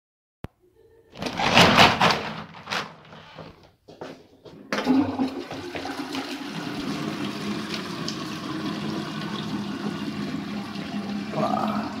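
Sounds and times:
rushing water: 0:05.6 - 0:12.0.

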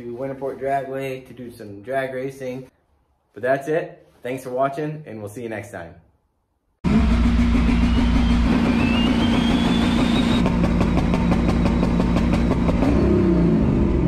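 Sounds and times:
high turbo whine: 0:06.8 - 0:14.0.

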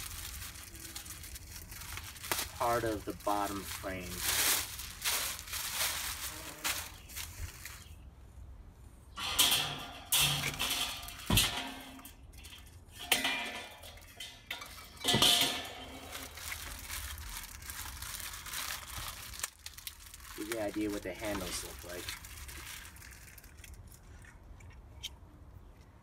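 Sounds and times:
plastic wrapping crinkling: 0:00.0 - 0:08.0, 0:14.8 - 0:24.3
metal grates clinking: 0:09.2 - 0:17.4.

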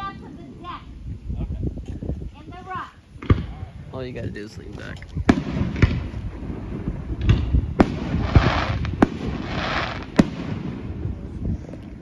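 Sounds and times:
firework bangs: 0:03.2 - 0:03.7, 0:05.2 - 0:12.0
firework hiss: 0:05.3 - 0:11.6.

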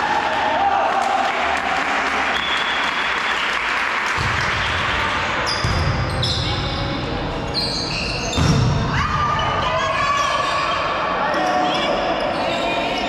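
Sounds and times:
shoes squeaking on floor: 0:07.5 - 0:08.5.

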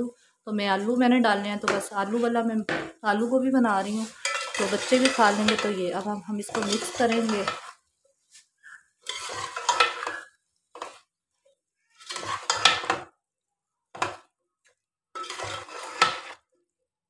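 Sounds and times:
metal spoon scraping a pot: 0:03.8 - 0:07.8, 0:09.0 - 0:11.1, 0:11.9 - 0:13.0, 0:15.2 - 0:16.5.

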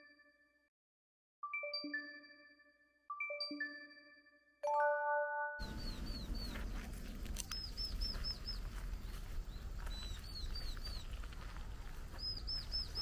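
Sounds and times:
low outdoor rumble: 0:05.6 - 0:13.0
small bird chirping: 0:05.6 - 0:13.0.

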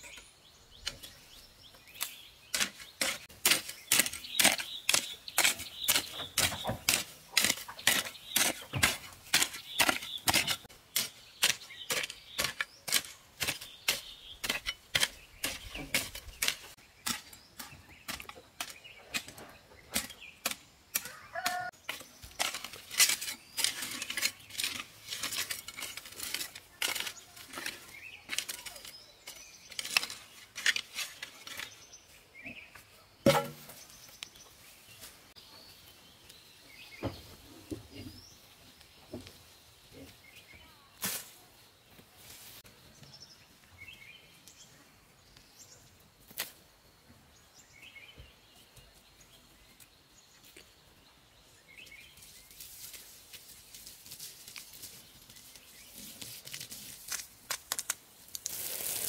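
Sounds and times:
hoe chopping into stony soil: 0:01.9 - 0:28.8, 0:33.2 - 0:33.8.

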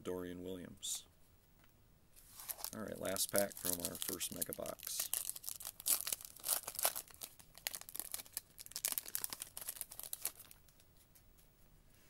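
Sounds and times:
foil wrapper crinkling: 0:02.2 - 0:10.8.

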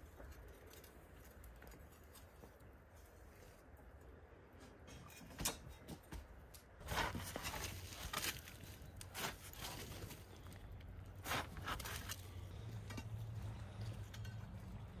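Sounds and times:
poker scraping embers: 0:06.8 - 0:14.5.

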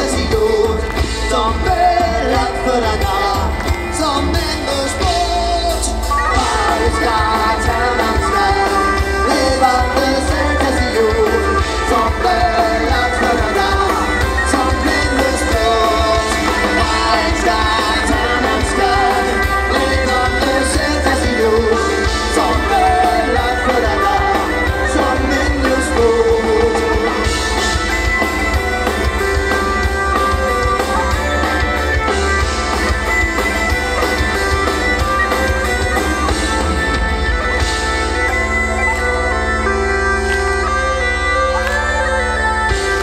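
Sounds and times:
person singing: 0:00.0 - 0:27.8
live folk-rock band: 0:00.0 - 0:43.0
bagpipes: 0:05.8 - 0:43.0.

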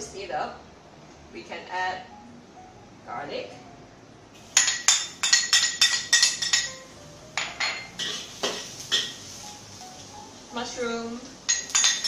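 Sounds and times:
spatula clanking against wok: 0:04.6 - 0:06.8, 0:07.4 - 0:09.2, 0:11.5 - 0:12.0.

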